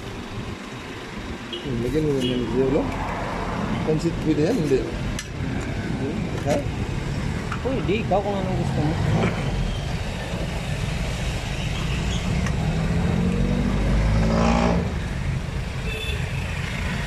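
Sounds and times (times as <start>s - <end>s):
low traffic rumble: 0.0s - 17.0s
vehicle engine passing: 1.7s - 15.3s.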